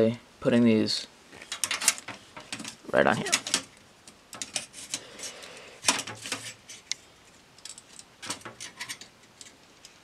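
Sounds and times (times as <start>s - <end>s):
metal parts clicking and clinking: 1.5s - 7.0s, 7.6s - 10.0s.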